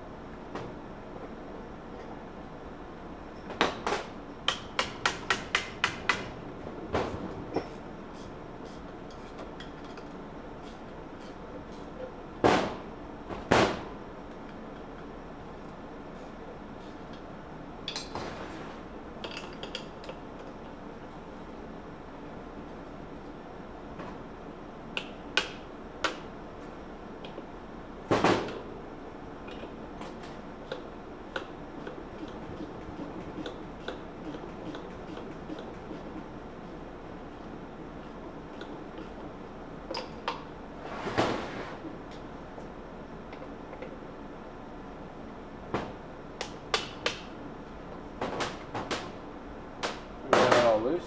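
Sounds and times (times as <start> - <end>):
loud sharp knocks: 12.4 - 12.8.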